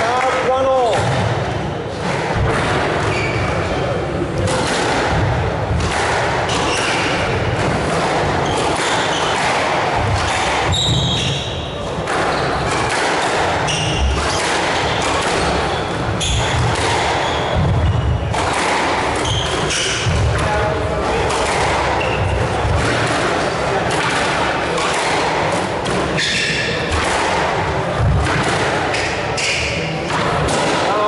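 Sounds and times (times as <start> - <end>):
squash ball struck by rackets: 0.8 - 31.0
shoes squeaking on court floor: 3.0 - 4.0, 8.4 - 20.1, 21.6 - 22.6.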